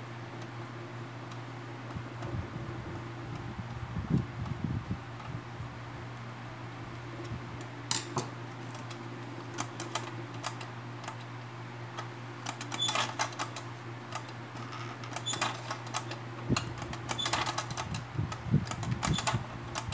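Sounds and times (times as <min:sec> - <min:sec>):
steady low hum: 0:00.0 - 0:19.9.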